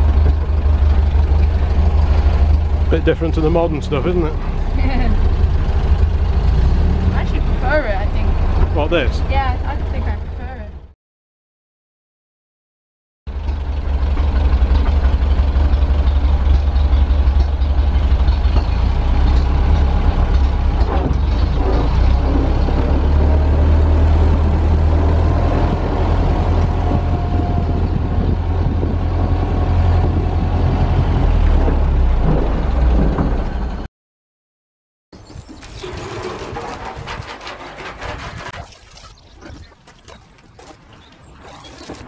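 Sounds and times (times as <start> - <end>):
truck engine low rumble: 0.0 - 11.0, 13.3 - 33.9.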